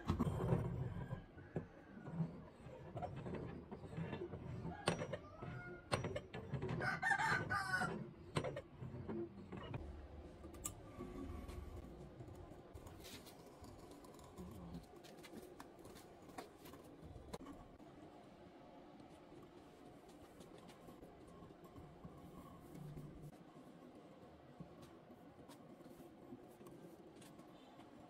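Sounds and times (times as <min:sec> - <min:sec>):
rooster crowing: 0:06.8 - 0:08.0.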